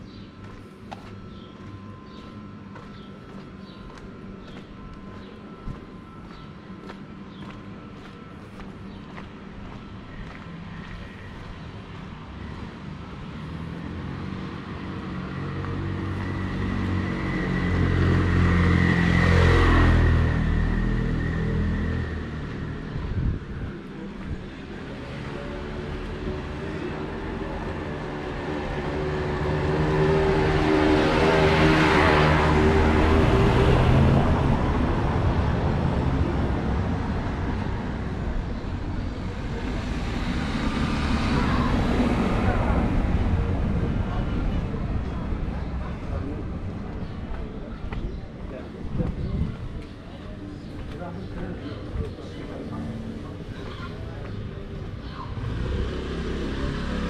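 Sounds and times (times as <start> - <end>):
vehicle engine passing by: 12.5 - 23.4, 24.7 - 47.9, 51.0 - 57.0.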